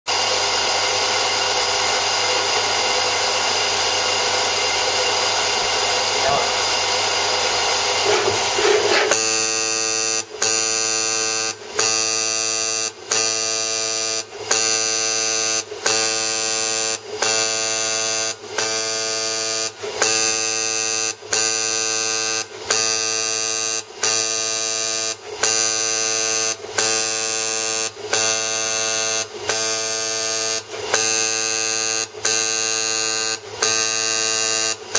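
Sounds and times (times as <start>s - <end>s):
dispenser valve buzzing: 0.1s - 24.7s.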